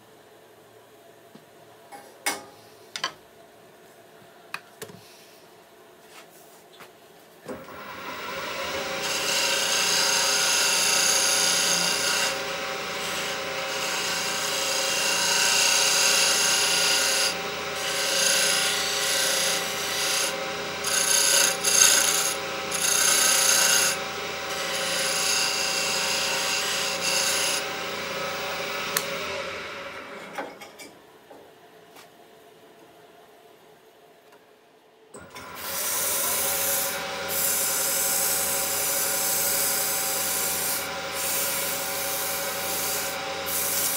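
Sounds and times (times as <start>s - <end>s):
lathe motor hum: 7.5s - 30.3s, 35.2s - 43.9s.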